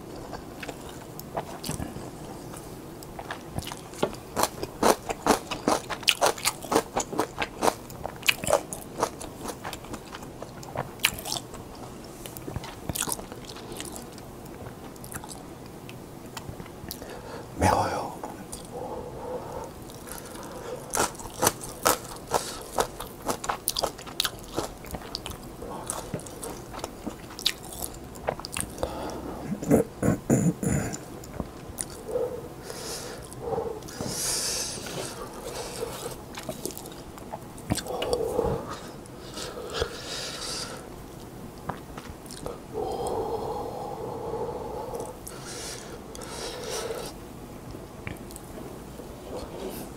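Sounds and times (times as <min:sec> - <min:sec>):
wet chewing and slurping: 0:00.2 - 0:15.4, 0:19.8 - 0:28.9.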